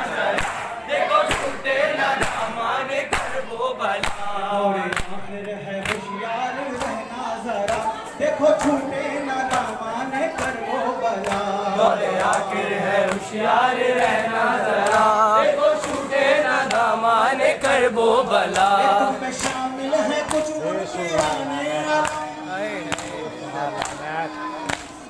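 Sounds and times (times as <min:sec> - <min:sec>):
rhythmic slaps: 0:00.0 - 0:06.1, 0:06.7 - 0:25.0
voices chanting along: 0:00.0 - 0:25.0
man chanting into microphone: 0:18.8 - 0:24.6.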